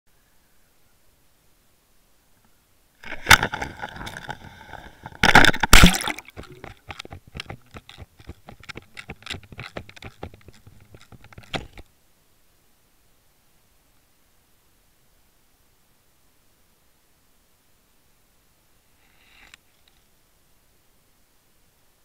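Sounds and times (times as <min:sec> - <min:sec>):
underwater clicks and crackles: 0:03.0 - 0:11.9
splash into water: 0:05.2 - 0:06.6.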